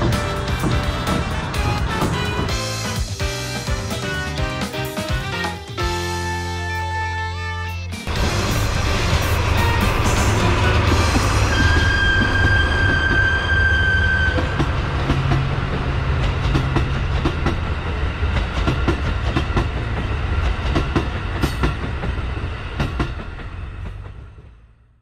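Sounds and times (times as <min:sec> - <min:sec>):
wheels clacking over rail joints: 0:00.0 - 0:03.1, 0:10.0 - 0:24.4
locomotive engine drone: 0:00.0 - 0:04.3, 0:08.0 - 0:24.9
high steady train whistle: 0:08.5 - 0:14.8.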